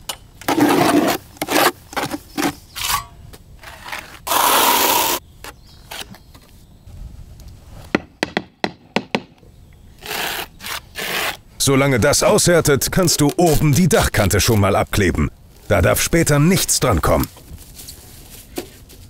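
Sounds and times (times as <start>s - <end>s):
trowel scraping mortar: 0.5s - 5.2s, 10.0s - 11.4s.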